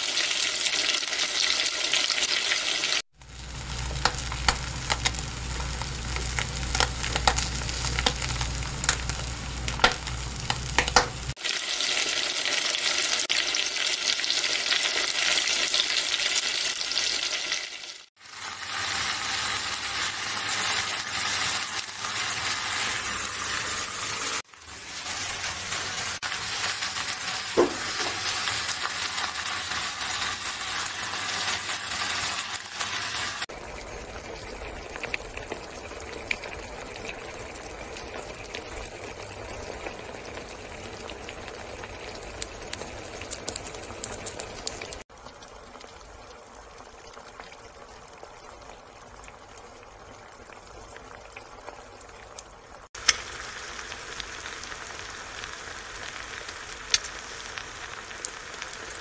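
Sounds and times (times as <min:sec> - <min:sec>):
eggs sizzling in a pan: 0:00.0 - 0:59.0
pops and crackles: 0:03.2 - 0:11.4, 0:42.4 - 0:45.4, 0:56.8 - 0:59.0.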